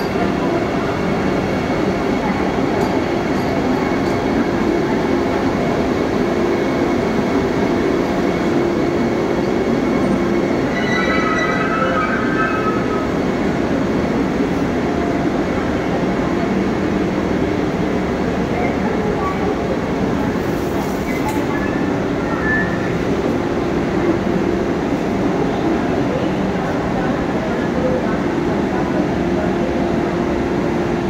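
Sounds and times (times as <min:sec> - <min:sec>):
train rolling with low hum: 0:00.0 - 0:31.0
high squeal: 0:10.4 - 0:13.8.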